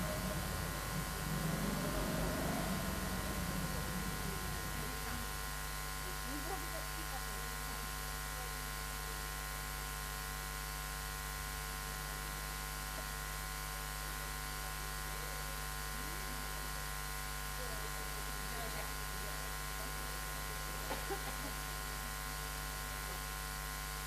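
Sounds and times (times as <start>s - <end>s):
loud noise: 0.0s - 6.3s
electrical hum and buzz: 0.0s - 24.0s.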